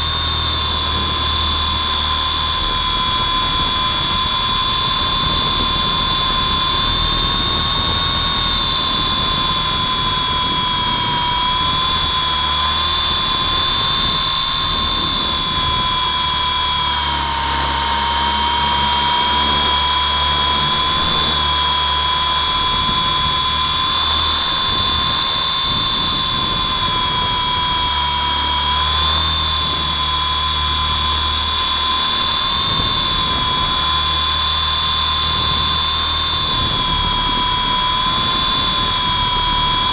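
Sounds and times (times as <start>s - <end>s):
toy helicopter motor whine: 0.0s - 39.9s.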